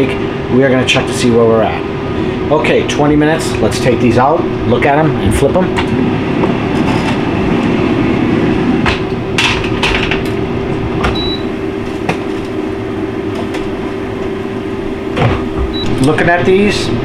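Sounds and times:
air fryer fans humming: 0.0s - 17.0s
metal racks clanking: 8.8s - 10.4s
electronic beep: 11.1s - 11.5s.

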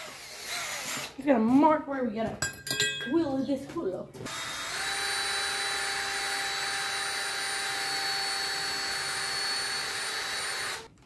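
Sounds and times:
electric drill whining: 0.0s - 1.2s, 4.3s - 10.9s.

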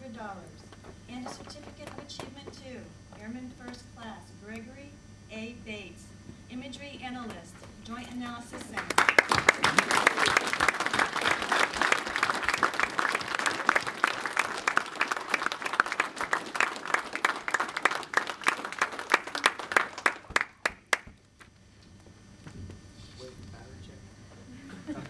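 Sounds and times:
audience applauding: 8.6s - 21.1s.

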